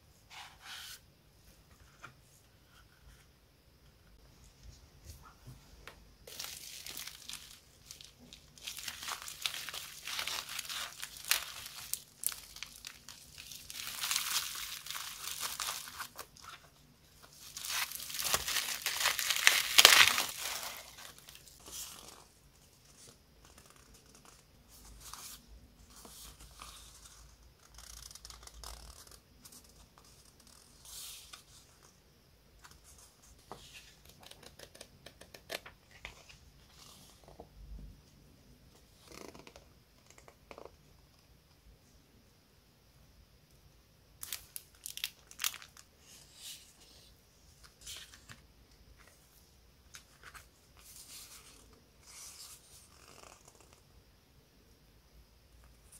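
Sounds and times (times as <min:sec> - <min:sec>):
bubble wrap crinkling: 0:06.2 - 0:22.3, 0:44.2 - 0:45.9.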